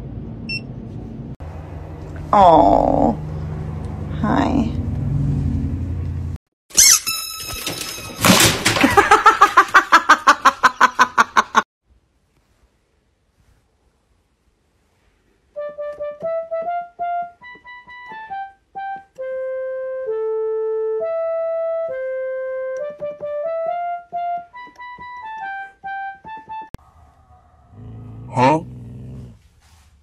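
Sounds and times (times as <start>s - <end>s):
toy keyboard melody: 15.8s - 26.6s.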